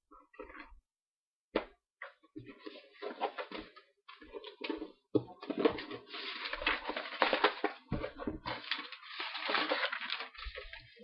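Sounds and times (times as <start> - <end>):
paper packaging rustling: 2.4 - 11.0.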